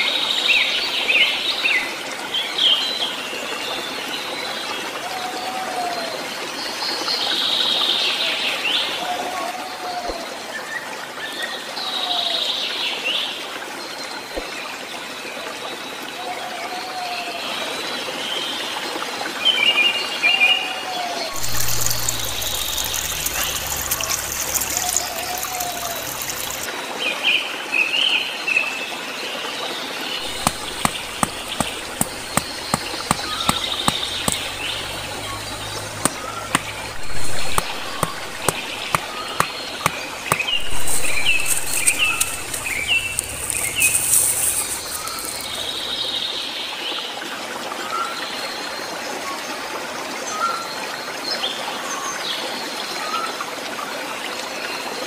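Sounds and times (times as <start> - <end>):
stream running: 0.0 - 55.0
birds chirping: 21.3 - 26.7, 30.2 - 46.5
wood being knocked: 30.2 - 35.1, 35.9 - 45.4.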